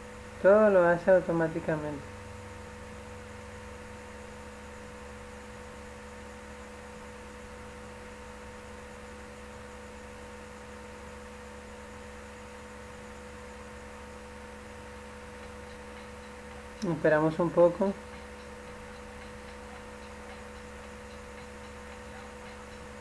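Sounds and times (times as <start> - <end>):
constant hiss: 0.0 - 23.0
electrical hum with tones: 0.0 - 23.0.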